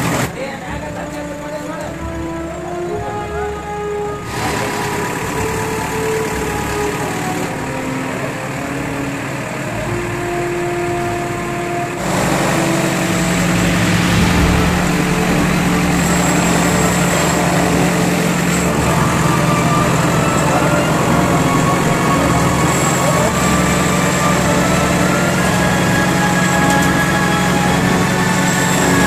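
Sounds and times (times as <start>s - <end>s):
diesel engine running: 3.7s - 29.0s.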